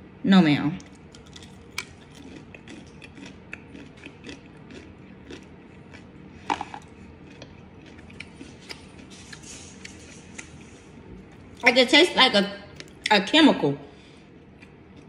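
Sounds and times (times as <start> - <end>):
person chewing fried food: 0.8 - 11.6, 14.3 - 15.0.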